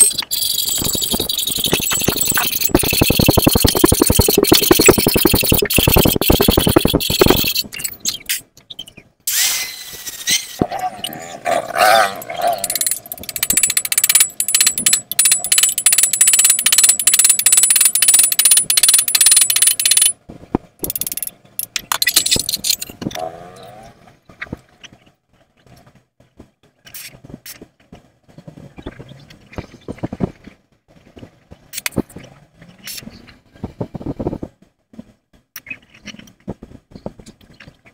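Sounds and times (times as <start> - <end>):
metalwork clicks and taps: 12.2 - 20.2, 20.8 - 23.2.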